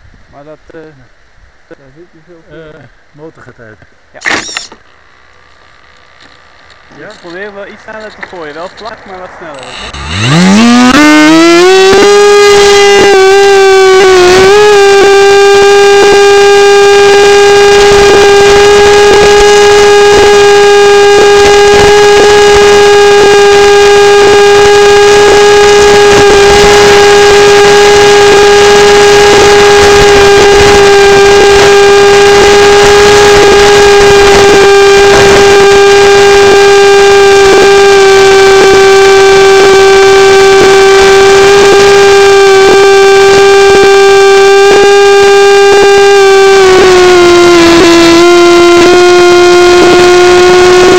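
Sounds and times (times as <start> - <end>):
electric motor high whine: 4.2 - 50.9
wind noise: 7.1 - 37.8.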